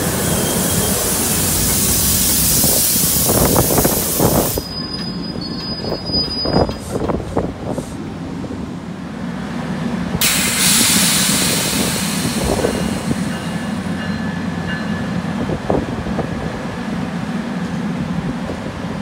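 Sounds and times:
air brakes hissing: 0.0 - 8.1, 10.2 - 14.0
train humming: 0.0 - 19.0.

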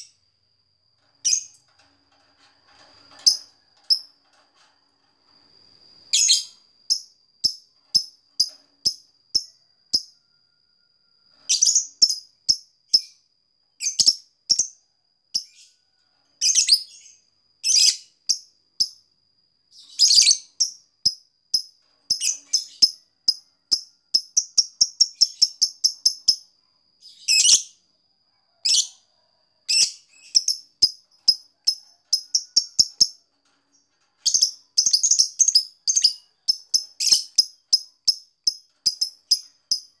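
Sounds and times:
lovebird chirping: 6.1 - 8.1, 19.8 - 20.8, 34.2 - 40.0.

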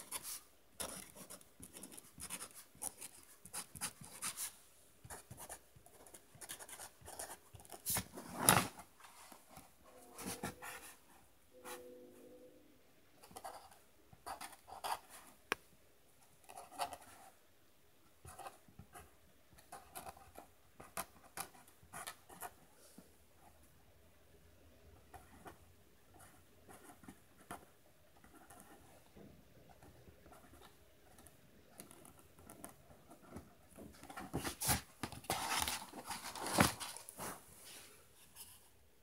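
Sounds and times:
pen scratching on paper: 0.0 - 8.0, 19.7 - 22.6.

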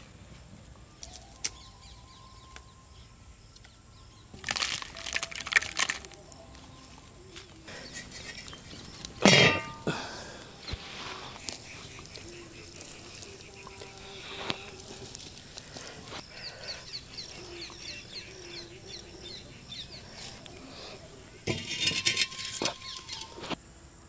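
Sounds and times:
firewood rustling and knocking: 4.4 - 16.3, 21.4 - 23.6.

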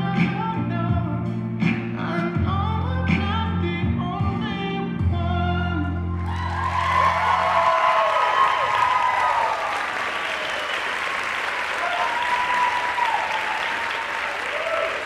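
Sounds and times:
audience applauding: 6.2 - 15.0
voices cheering: 6.2 - 15.0.

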